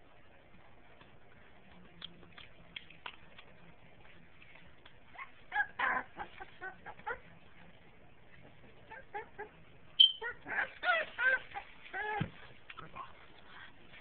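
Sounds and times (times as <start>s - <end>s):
puppies yipping and squealing: 5.1s - 7.3s, 8.8s - 13.6s.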